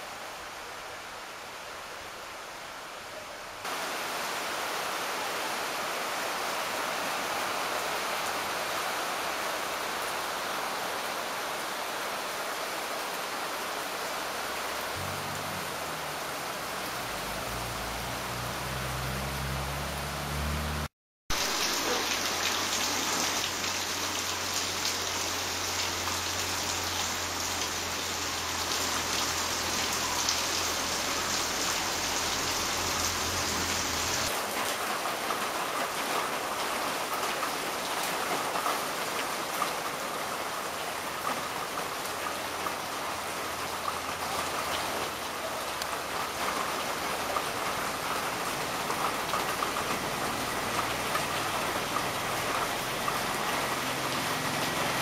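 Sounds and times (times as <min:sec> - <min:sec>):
rain on gravel and puddles: 0:03.6 - 0:55.0.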